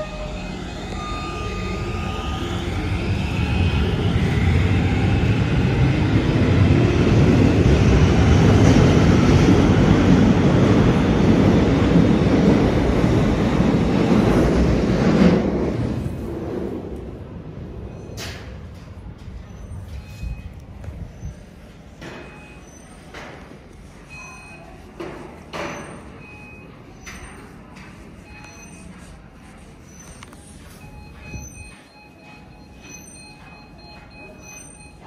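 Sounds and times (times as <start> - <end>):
metro train rumbling past: 0.0 - 22.4
rising train whine: 0.0 - 35.0.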